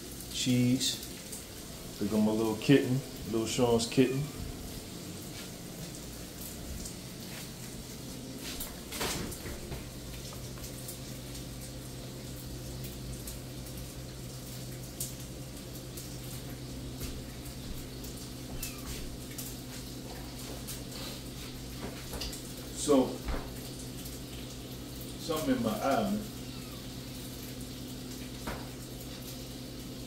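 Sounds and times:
kitten mewing faintly: 0:18.5 - 0:19.1, 0:26.3 - 0:27.0.

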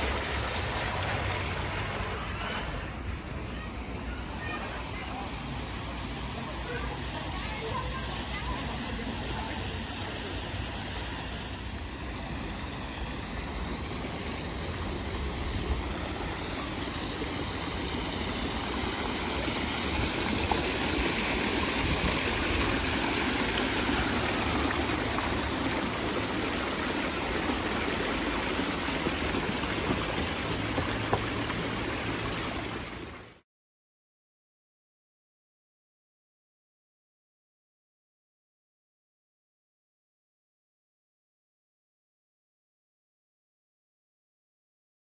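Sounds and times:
water rushing down cascade: 0:00.0 - 0:33.4.

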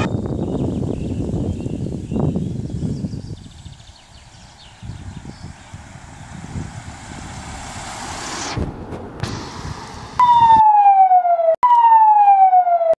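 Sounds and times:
rushing noise of ambulance: 0:04.4 - 0:13.0
ambulance siren: 0:10.2 - 0:13.0.

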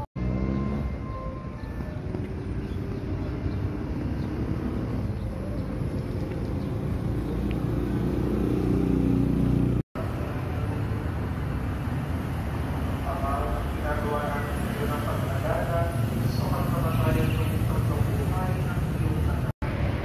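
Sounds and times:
passing cars and motorcycles: 0:00.0 - 0:20.0.

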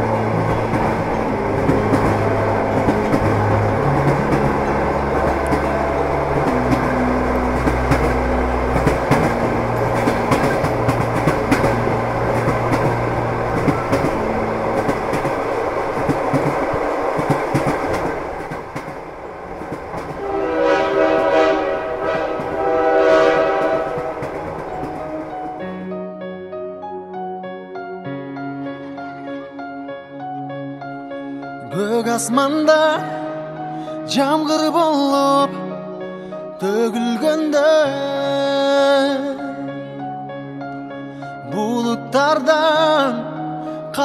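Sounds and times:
train horn blasts: 0:00.0 - 0:14.8, 0:20.2 - 0:25.3
train wheels clattering over rail joints: 0:00.0 - 0:25.7
locomotive engine drone: 0:00.0 - 0:26.0.

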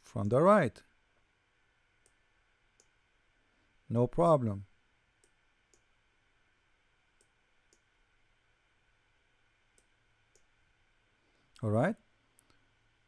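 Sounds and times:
faint computer mouse clicks: 0:02.0 - 0:02.2, 0:02.8 - 0:03.0, 0:05.2 - 0:05.9, 0:07.2 - 0:07.9, 0:09.7 - 0:10.5.

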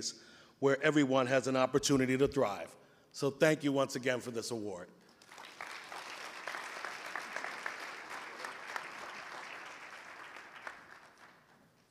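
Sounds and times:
audience applauding: 0:05.2 - 0:11.9.

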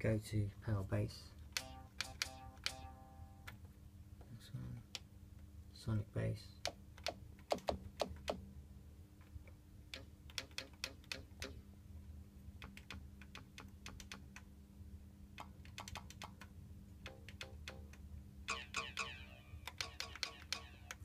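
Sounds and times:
low electrical hum: 0:00.0 - 0:21.0
buttons clicking: 0:01.6 - 0:03.6, 0:17.1 - 0:21.0.

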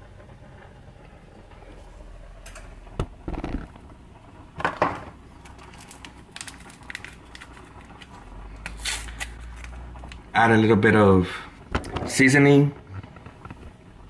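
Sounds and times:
clatter on countertop: 0:04.6 - 0:05.6, 0:11.7 - 0:12.2.

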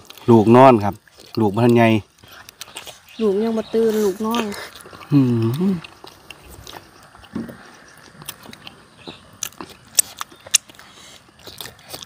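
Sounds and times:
chewing crispy food: 0:00.0 - 0:12.0.

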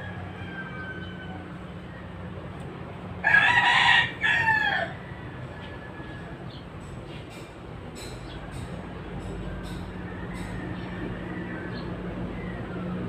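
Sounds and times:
rooster crowing: 0:00.0 - 0:02.0, 0:03.2 - 0:06.6, 0:09.8 - 0:13.0.

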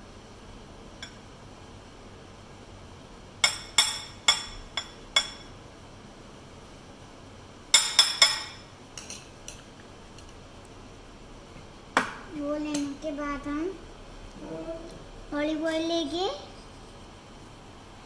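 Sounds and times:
metal spoon tapping bowl rim: 0:07.8 - 0:09.2.

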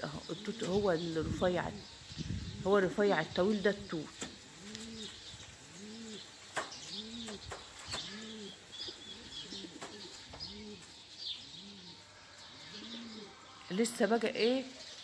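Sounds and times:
small birds chirping: 0:00.0 - 0:15.0
pigeon cooing: 0:04.2 - 0:13.5.

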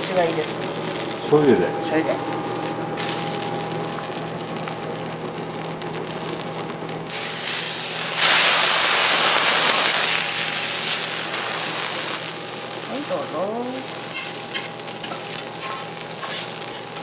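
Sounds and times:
food sizzling on a hot griddle: 0:00.0 - 0:17.0
metal spatulas on griddle: 0:14.0 - 0:17.0.

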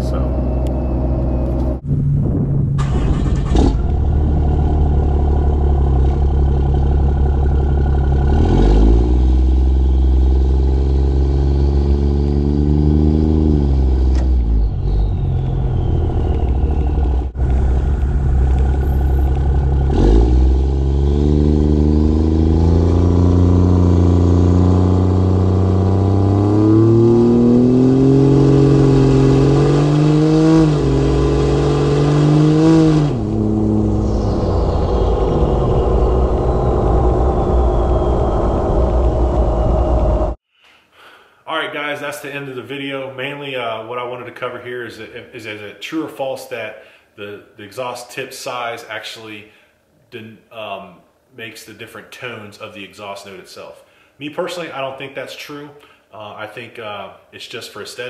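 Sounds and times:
diesel truck exhaust accelerating: 0:00.0 - 0:40.4.

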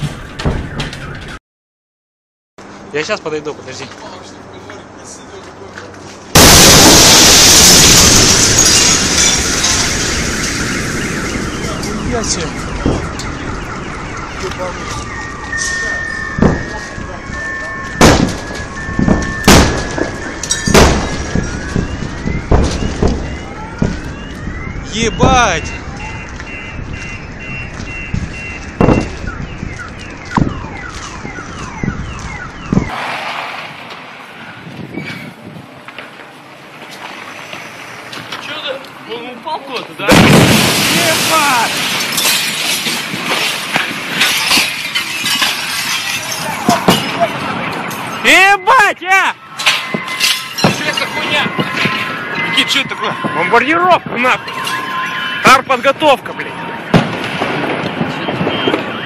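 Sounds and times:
overwhelming boom: 0:06.4 - 0:15.4, 0:18.0 - 0:25.4
car alarm whooping: 0:06.4 - 0:33.0, 0:40.8 - 0:42.5, 0:44.2 - 0:57.2, 0:57.9 - 0:59.0
wind noise on microphone: 0:18.6 - 0:35.8.

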